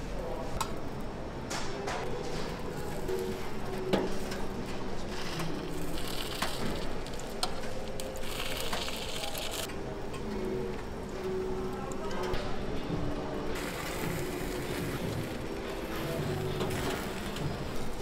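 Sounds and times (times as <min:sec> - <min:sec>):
batter sizzling and bubbling: 0:05.7 - 0:09.7.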